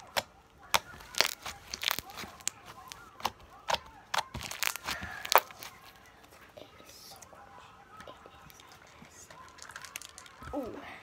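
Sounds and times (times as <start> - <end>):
bead slime crackling and popping: 0.0 - 6.0, 9.3 - 10.6.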